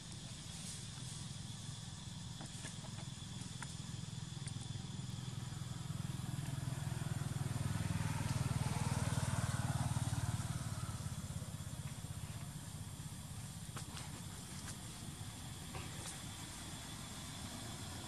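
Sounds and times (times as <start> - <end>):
motor engine passing by: 4.5 - 13.3.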